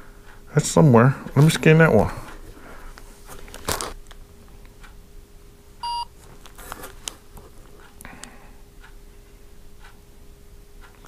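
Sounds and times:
packet rustling and clicks: 0:03.3 - 0:04.2, 0:06.2 - 0:07.8
short electronic beep: 0:05.8 - 0:06.1.

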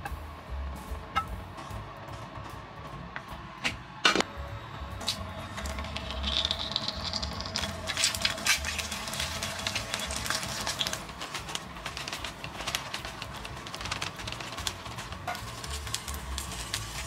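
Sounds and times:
egg sizzling in hot oil: 0:05.0 - 0:17.0
oil popping: 0:05.0 - 0:17.0.

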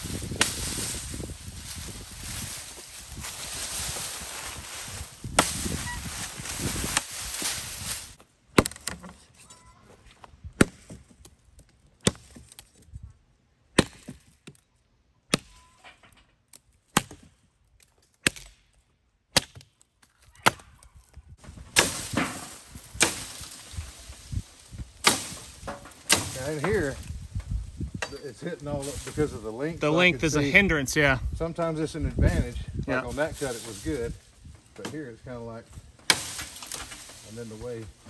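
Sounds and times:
branches and leaves rustling: 0:00.0 - 0:14.7, 0:15.4 - 0:38.0
axe chopping branches: 0:00.2 - 0:09.2, 0:10.6 - 0:12.8, 0:13.7 - 0:14.6, 0:15.3 - 0:15.7, 0:16.6 - 0:20.8, 0:21.5 - 0:29.4, 0:34.7 - 0:35.1, 0:35.9 - 0:38.0.

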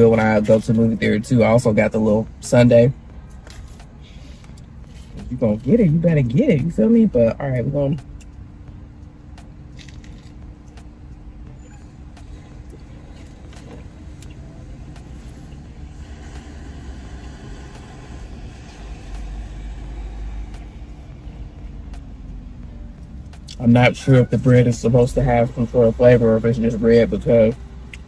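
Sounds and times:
low hum and rumble: 0:00.0 - 0:28.0
person chewing: 0:03.1 - 0:05.7, 0:08.0 - 0:11.2, 0:12.2 - 0:22.1.

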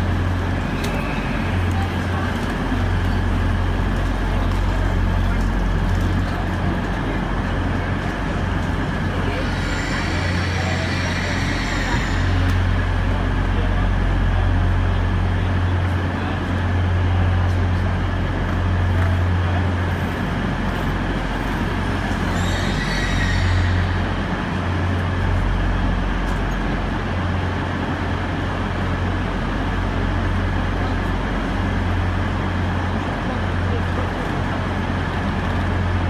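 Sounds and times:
trains humming and rumbling: 0:00.0 - 0:36.0.

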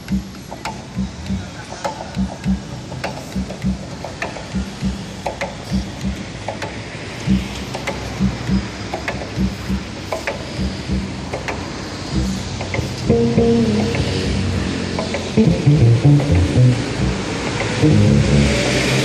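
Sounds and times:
cello plucked and tapped: 0:12.2 - 0:14.4, 0:15.0 - 0:18.5.

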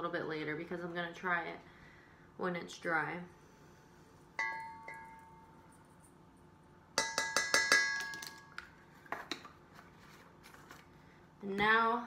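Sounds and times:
spoon tapping metal bowl rim: 0:07.0 - 0:08.7.

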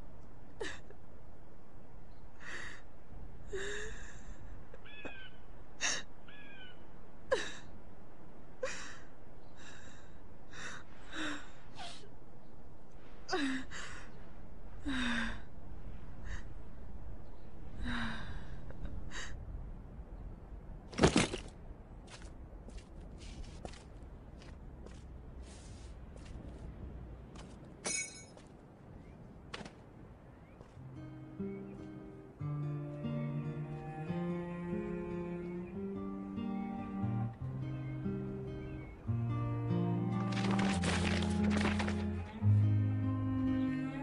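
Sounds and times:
steady low background: 0:21.5 - 0:44.0.

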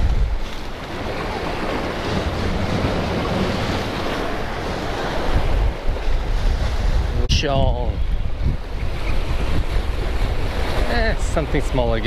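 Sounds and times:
surf breaking against rocks: 0:00.0 - 0:07.2
wind on microphone: 0:00.0 - 0:12.0.

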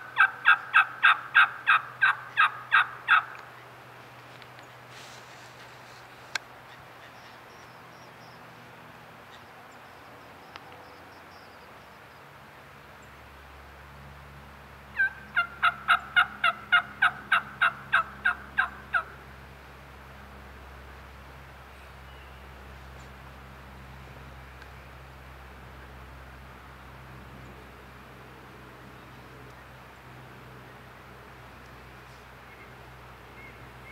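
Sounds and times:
wild turkey yelps: 0:00.1 - 0:03.4, 0:14.9 - 0:19.1.

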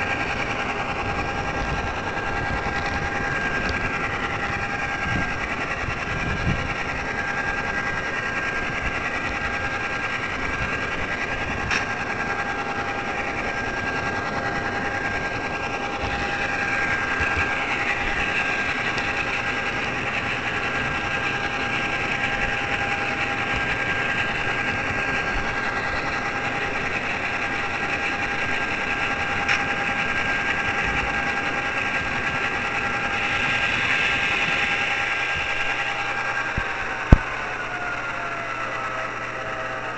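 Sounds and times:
electric motor whine: 0:00.0 - 0:39.9
model train wheels on rails: 0:00.0 - 0:39.9.

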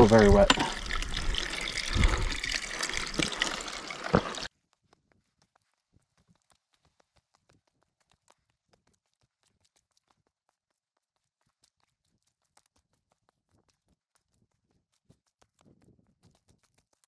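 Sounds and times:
water trickling: 0:00.0 - 0:04.5.

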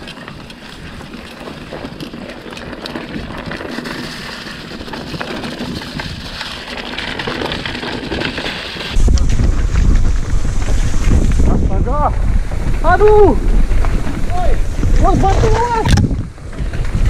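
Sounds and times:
bike clicks and rattles: 0:00.0 - 0:17.0
bike tyre noise: 0:00.0 - 0:17.0
wind rushing over microphone: 0:03.0 - 0:17.0.

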